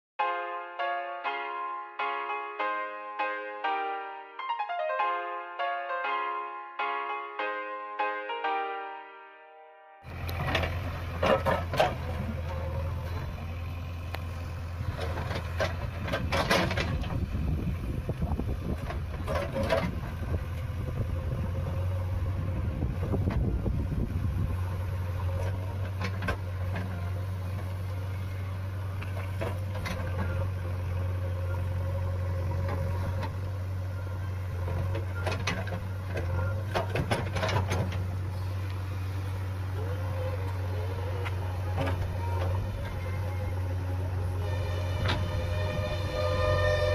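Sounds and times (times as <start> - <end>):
diesel engine running: 10.1 - 46.9.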